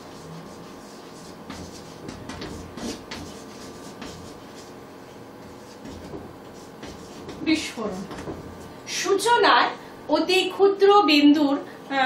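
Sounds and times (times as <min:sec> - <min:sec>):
chalk scratching on blackboard: 0:00.0 - 0:08.7.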